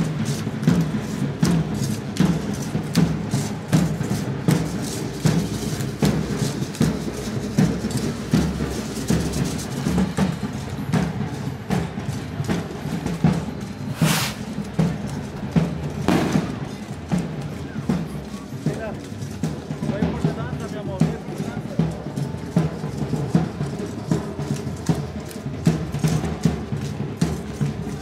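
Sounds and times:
drums playing: 0:00.1 - 0:28.0
sharp loud crack: 0:16.1 - 0:16.8.

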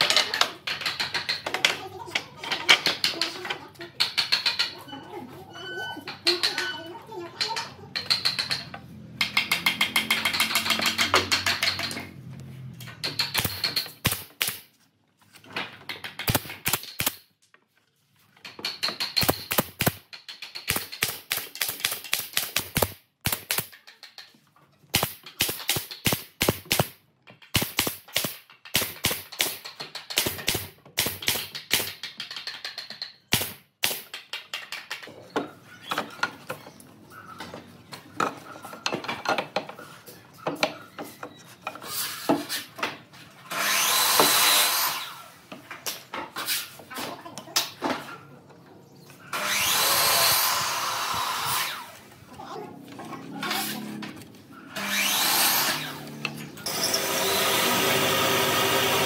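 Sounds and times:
nail gun firing into wood: 0:13.0 - 0:14.7, 0:15.9 - 0:17.3, 0:18.9 - 0:23.8, 0:24.9 - 0:32.4, 0:33.3 - 0:34.6.

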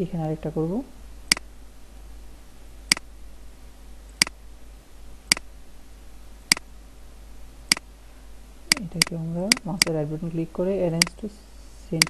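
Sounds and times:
computer mouse button clicking: 0:08.7 - 0:09.9.

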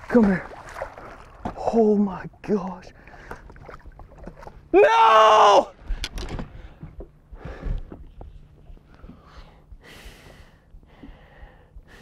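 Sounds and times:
man breathing heavily: 0:06.5 - 0:08.1, 0:08.8 - 0:12.0.

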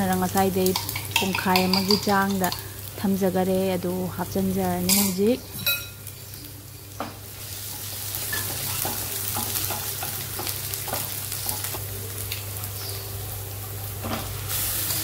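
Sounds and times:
onions sizzling in oil: 0:00.0 - 0:15.0
spatula scraping and tapping pan: 0:00.7 - 0:02.7, 0:07.7 - 0:11.8.

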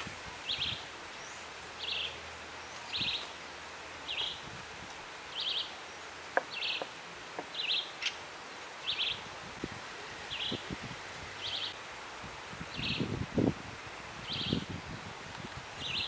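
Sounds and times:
songbird calling: 0:00.0 - 0:04.5, 0:05.3 - 0:09.3, 0:10.3 - 0:10.7, 0:11.4 - 0:11.8, 0:12.7 - 0:13.1, 0:14.2 - 0:14.8, 0:15.8 - 0:16.0.

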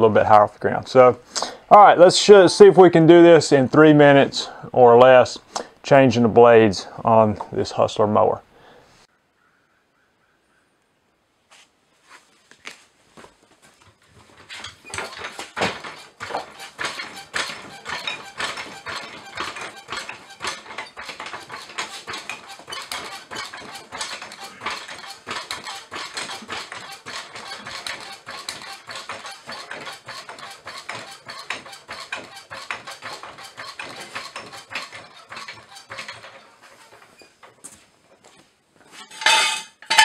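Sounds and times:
floor jack pumping clicks: 0:14.1 - 0:37.7.

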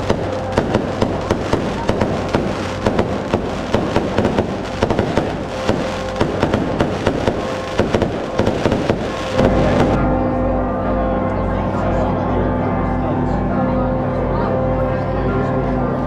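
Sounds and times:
firecrackers banging: 0:00.0 - 0:10.0.

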